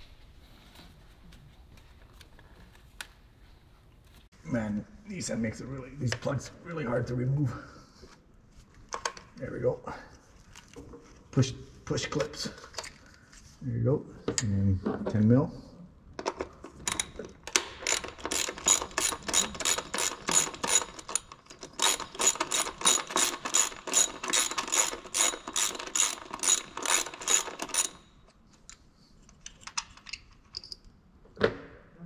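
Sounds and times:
hand ratchet clicking: 16.9 - 28.1.

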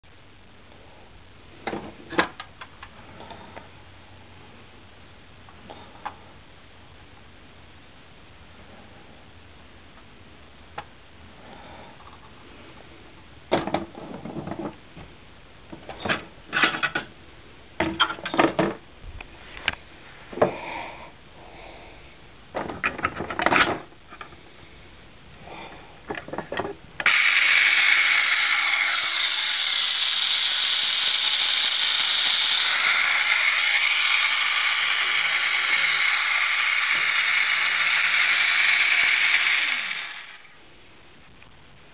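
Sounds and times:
electric motor buzzing whine: 27.0 - 40.6.

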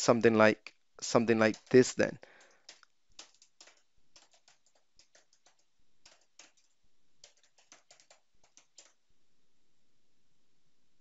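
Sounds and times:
faint keyboard typing: 0.6 - 9.0.

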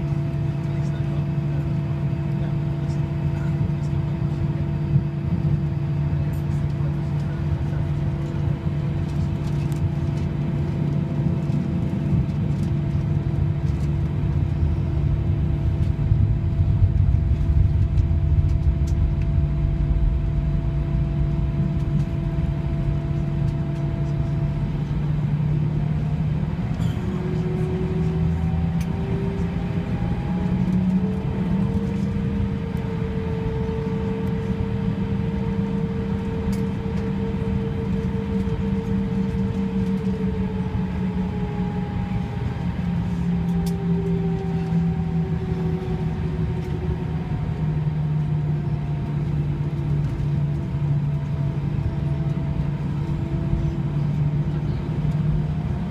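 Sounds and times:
jet engine whine and rumble: 0.0 - 55.9.

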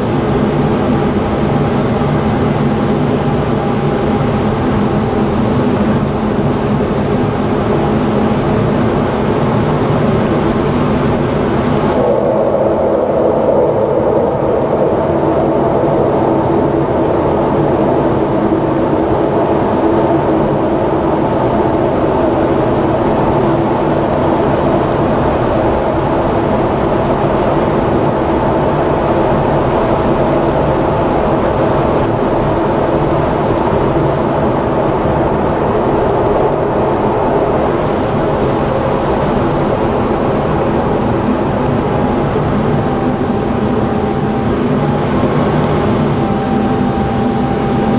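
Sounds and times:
low hum: 0.0 - 29.0, 29.6 - 47.9
jet engine and airflow rush: 0.0 - 47.9
high steady tone: 11.8 - 16.5, 38.2 - 47.9.

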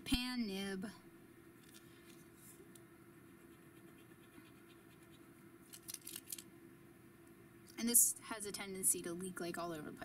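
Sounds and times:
faint steady hum: 0.0 - 10.0
marker nib scratching on paper: 3.2 - 5.3.

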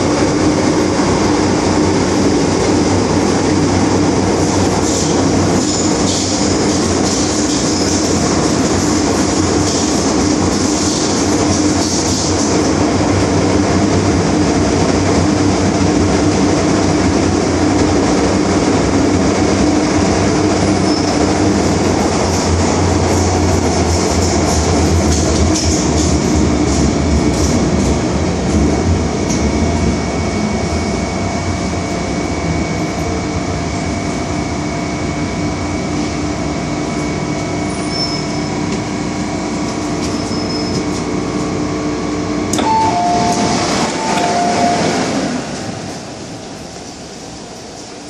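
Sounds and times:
train running rumble: 0.0 - 48.0
two-note chime: 42.6 - 45.2.

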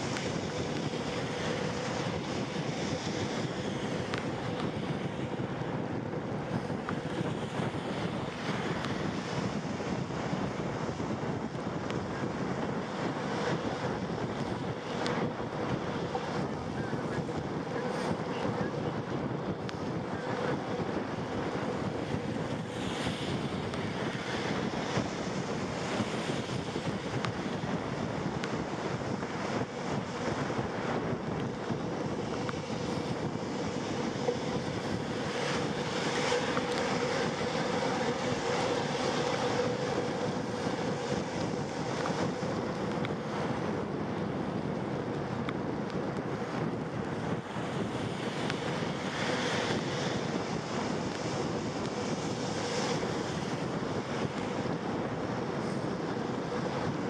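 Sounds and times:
faint steady hum: 0.0 - 57.0
wind noise on microphone: 0.0 - 57.0
road noise: 29.2 - 53.7.

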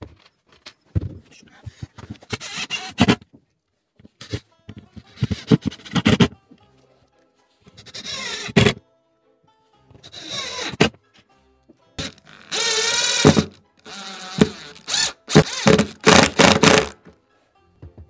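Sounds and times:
motor whining: 12.0 - 16.9
power tool bursts: 12.0 - 17.0.

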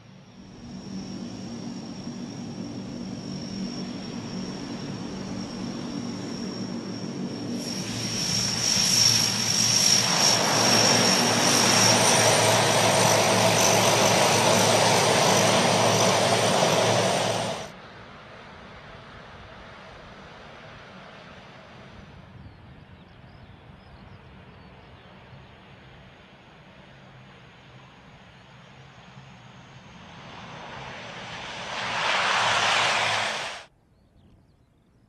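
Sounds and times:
high turbine whine: 0.0 - 17.7, 29.1 - 33.7
turboprop aircraft engines: 0.0 - 35.0.

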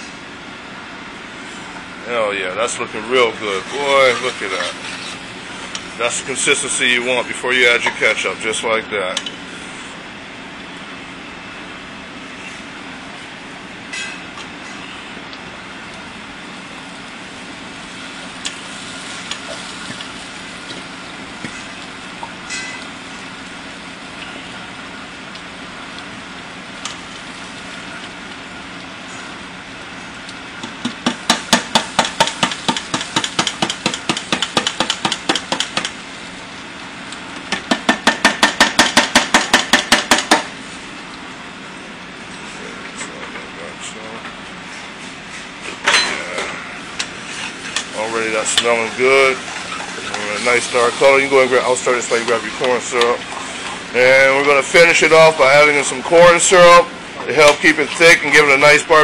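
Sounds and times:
sauce bubbling and sizzling: 9.3 - 42.6, 46.6 - 57.2
rapid knocking: 30.8 - 35.9.

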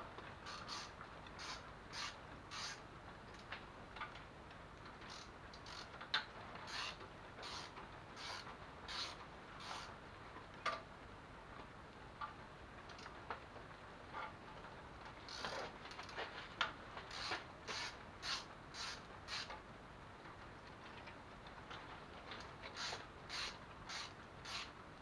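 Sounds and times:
ratchet wrench clicking: 0.5 - 2.8, 6.7 - 9.9, 15.3 - 15.6, 17.1 - 19.5, 22.8 - 24.7.

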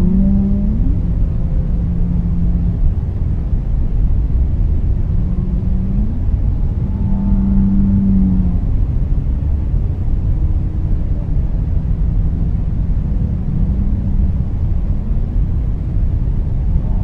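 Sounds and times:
whale calls: 0.0 - 2.9, 5.2 - 8.8
low underwater rumble: 0.0 - 17.0.

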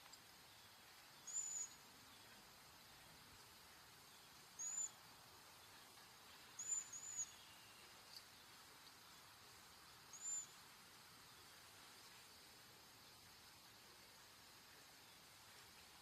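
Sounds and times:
bird high whistled call: 1.2 - 1.8, 4.6 - 5.0, 6.6 - 7.8, 10.1 - 10.6.

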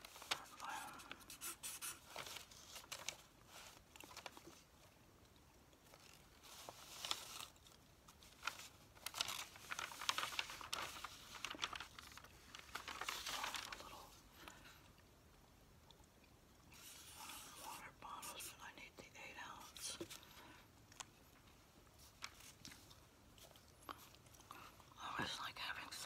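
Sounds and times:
newspaper pages rustling: 0.0 - 4.8, 5.9 - 14.5, 22.0 - 23.0.

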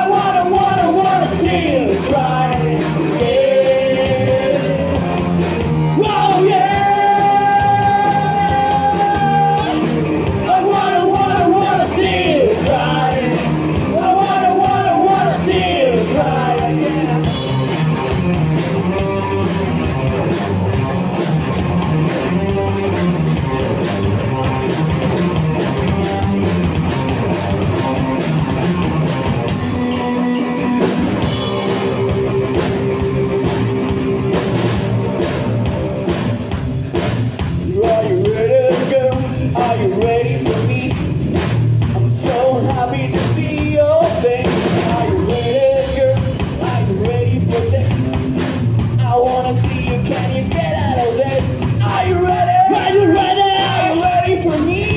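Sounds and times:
lead vocals singing: 0.0 - 17.7, 37.6 - 48.3, 48.9 - 54.9
live rock band playing: 0.0 - 54.9.

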